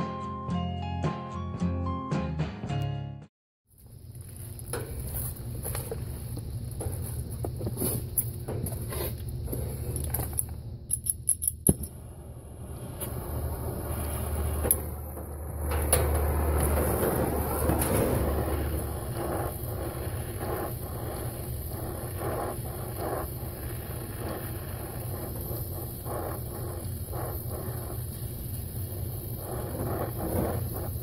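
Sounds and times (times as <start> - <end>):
torch flame hissing: 3.9 - 10.3, 11.9 - 31.0
low rumble: 11.8 - 28.0.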